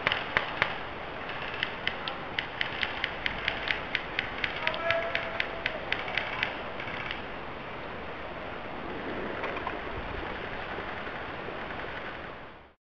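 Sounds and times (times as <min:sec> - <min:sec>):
sharp clicks: 0:00.0 - 0:07.2.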